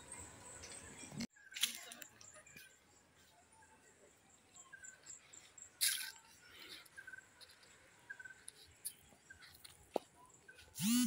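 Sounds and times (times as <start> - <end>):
birds chirping: 0.0 - 11.0
high-pitched insect pulse: 10.8 - 11.0.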